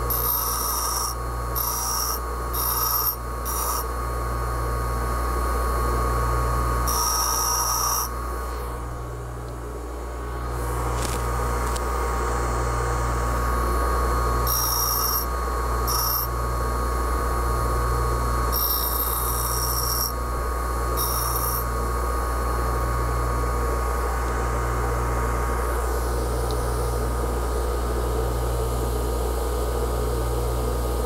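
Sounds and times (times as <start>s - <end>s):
bench grinder motor humming: 0.0s - 31.0s
high-pitched grinding: 0.1s - 3.9s, 6.9s - 8.2s, 14.4s - 16.3s, 18.5s - 20.2s, 21.0s - 21.7s.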